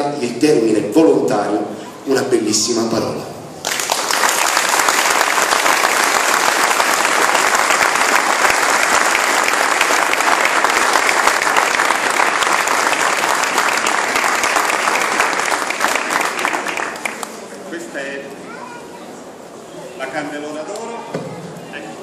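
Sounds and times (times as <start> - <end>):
crowd applauding: 3.6 - 17.5.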